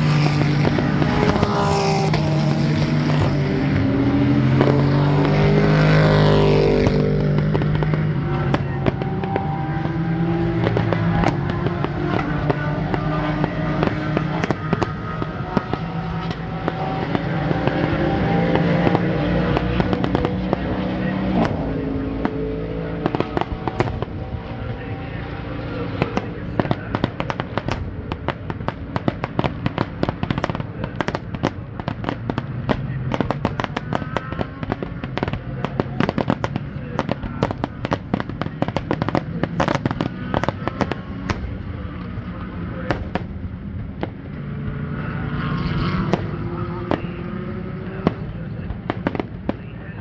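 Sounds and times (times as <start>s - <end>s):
fireworks bangs and crackling: 0.0s - 50.0s
steady low rumble: 19.2s - 45.2s.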